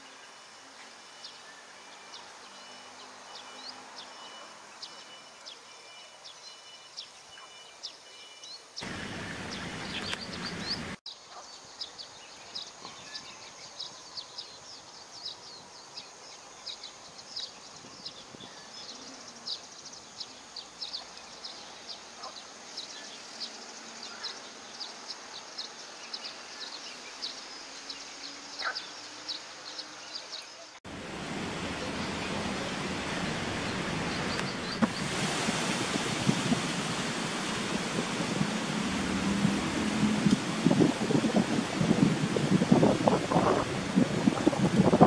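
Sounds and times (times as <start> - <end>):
small birds chirping: 8.5 - 39.3
loud rushing noise: 30.9 - 44.0.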